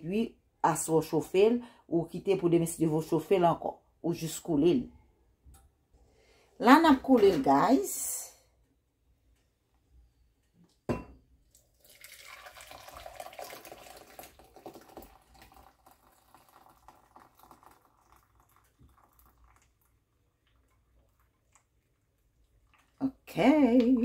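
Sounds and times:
tea pouring into a cup: 11.5 - 23.2.

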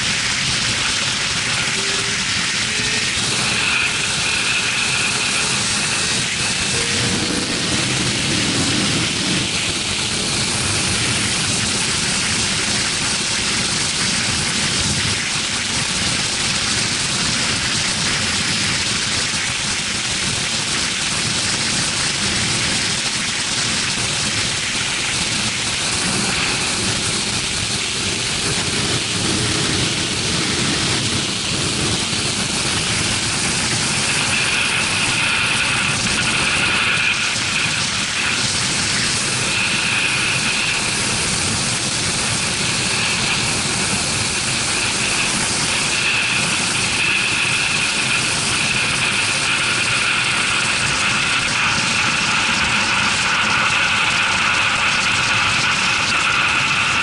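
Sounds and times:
wind hissing over microphone: 0.0 - 57.0
motorbike engine: 1.6 - 11.6.

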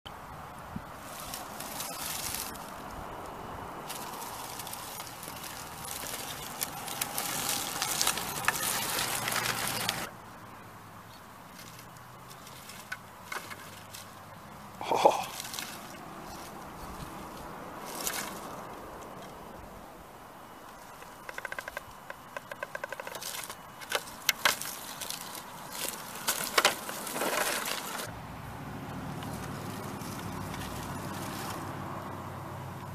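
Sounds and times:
tires crackling dry leaves: 0.1 - 32.9
rc car clicking: 6.0 - 10.1
short rustle: 23.0 - 28.1.

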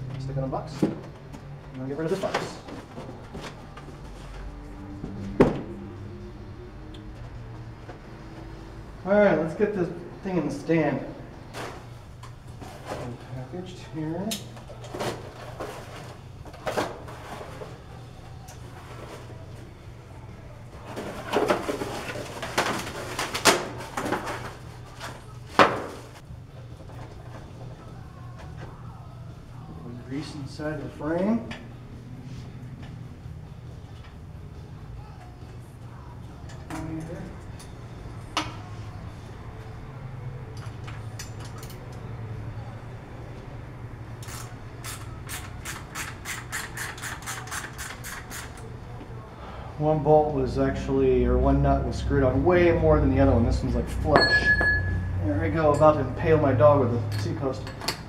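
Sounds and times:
plastic and cardboard rustling: 20.8 - 26.2.

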